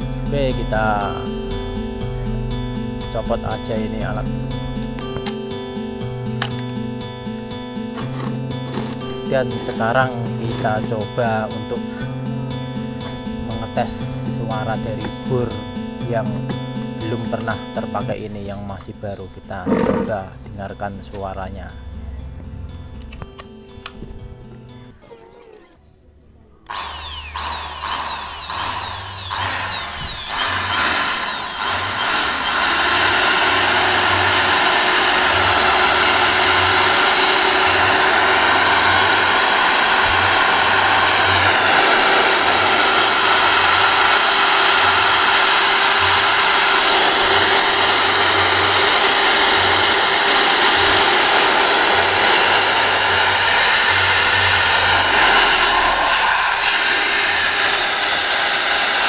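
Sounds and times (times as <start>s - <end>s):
impact drill motor whining: 19.6s - 20.2s, 26.7s - 59.0s.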